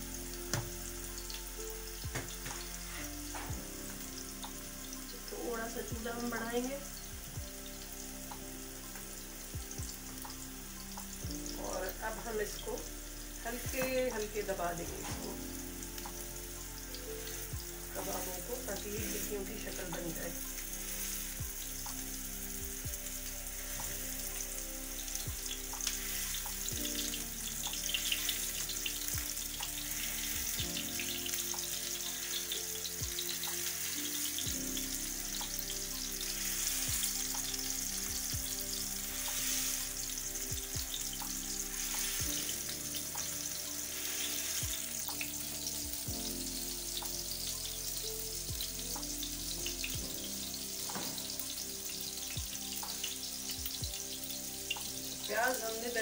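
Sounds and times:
patties sizzling in oil: 0.0s - 56.0s.

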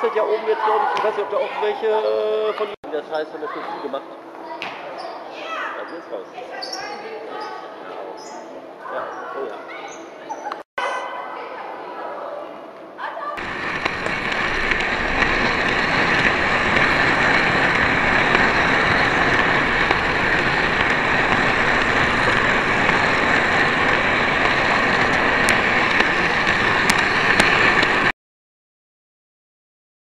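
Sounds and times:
model vehicle whirring: 13.4s - 28.1s.

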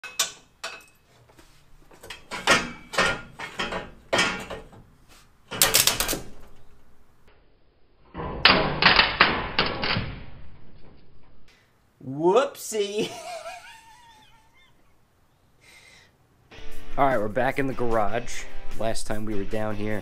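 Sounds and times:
metal tools knocking on bolts: 0.0s - 1.2s, 1.9s - 4.9s.

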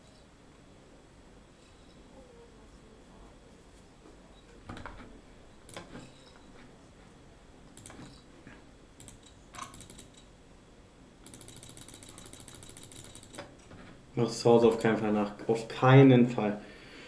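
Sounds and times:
betting chips clicking: 11.2s - 13.7s.

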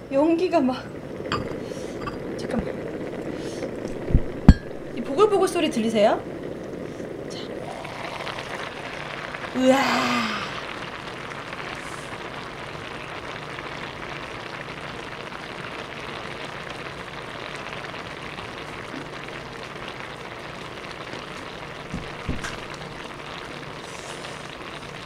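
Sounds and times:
stew bubbling in a pot: 0.0s - 25.0s
dull knocks: 21.9s - 22.6s.

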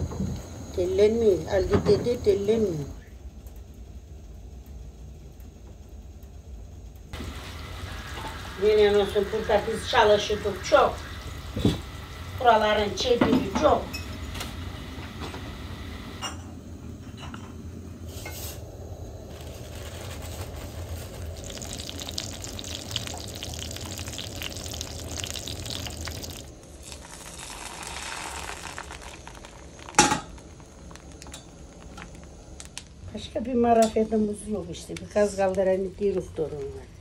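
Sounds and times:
food bubbling and sizzling in a pan: 7.1s - 16.2s, 19.0s - 33.0s.

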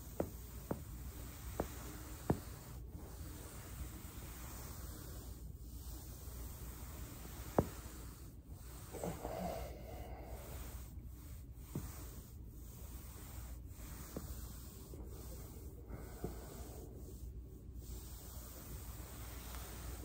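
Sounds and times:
body rolling on foam roller: 0.0s - 20.0s
person breathing: 7.8s - 12.3s, 13.0s - 20.0s.

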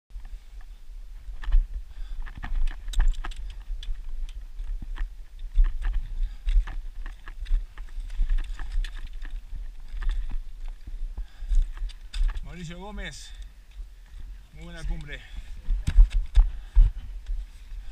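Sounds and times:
boots on loose stones: 0.6s - 13.4s.

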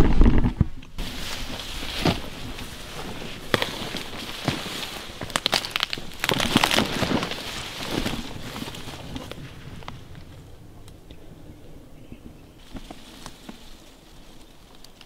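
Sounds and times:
wrapper crinkling: 1.0s - 9.5s.

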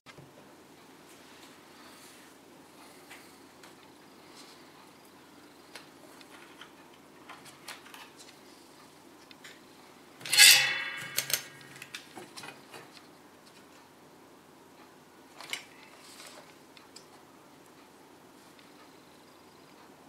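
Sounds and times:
loud ringing clatter: 10.2s - 12.0s.

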